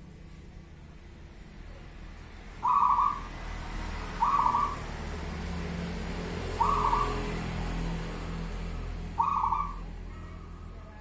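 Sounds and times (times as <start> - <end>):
low background hum: 0.0 - 11.0
dove cooing: 2.6 - 3.3, 4.2 - 4.9, 6.5 - 7.3, 9.1 - 10.9.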